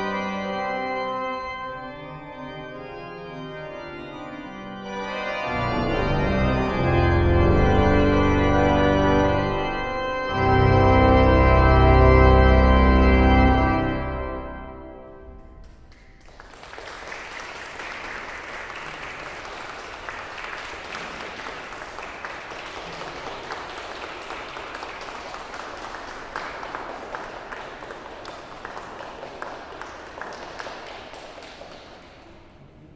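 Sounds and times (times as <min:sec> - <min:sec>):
pipe organ chord: 0:00.0 - 0:15.6
audience applauding: 0:15.6 - 0:32.7.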